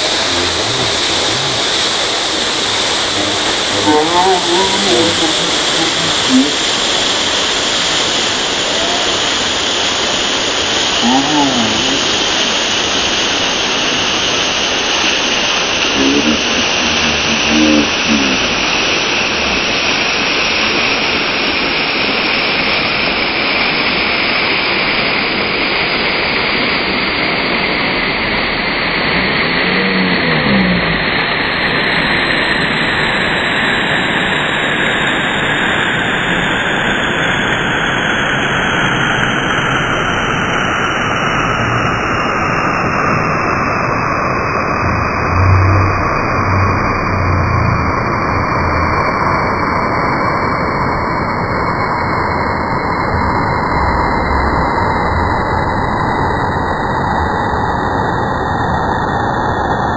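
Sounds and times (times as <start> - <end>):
short voice-like calls: 0.0 - 7.9, 10.6 - 13.0, 15.6 - 19.7, 28.9 - 31.8, 44.6 - 49.4
waterfall rushing: 0.0 - 59.6.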